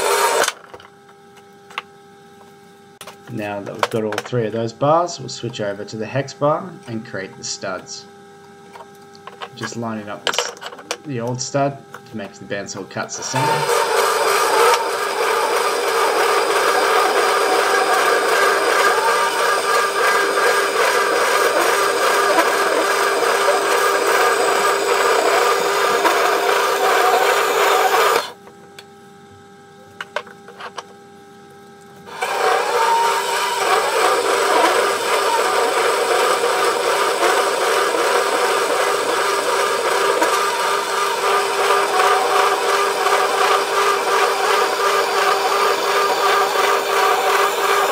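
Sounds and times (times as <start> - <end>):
bandsaw cutting metal: 0.0 - 0.6, 13.1 - 28.3, 32.1 - 47.9.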